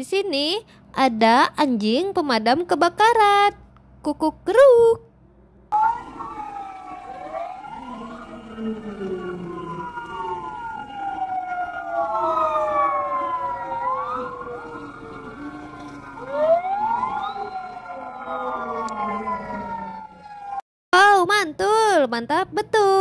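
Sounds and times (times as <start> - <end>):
fire truck sirens wailing: 5.7 - 20.6.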